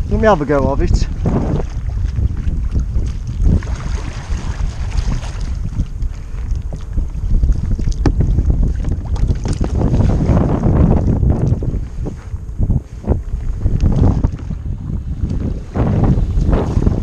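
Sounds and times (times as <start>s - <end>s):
wind buffeting microphone: 0.0s - 17.0s
paddle splashes and knocks: 1.1s - 11.6s.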